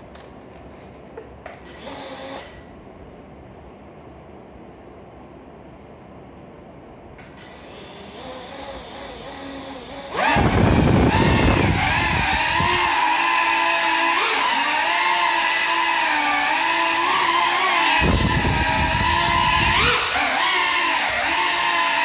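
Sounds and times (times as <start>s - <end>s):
quadcopter motors buzzing: 1.6s - 2.6s, 7.3s - 22.0s.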